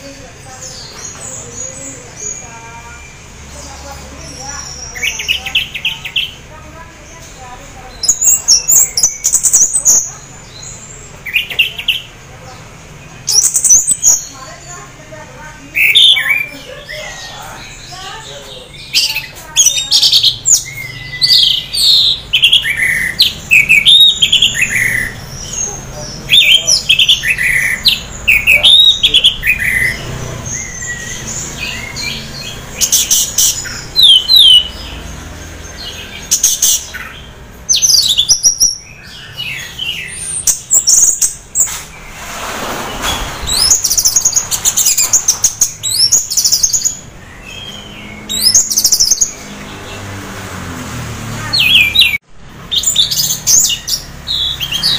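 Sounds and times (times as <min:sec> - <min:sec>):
thrush singing chirping notes: 0:12.8 - 0:54.9.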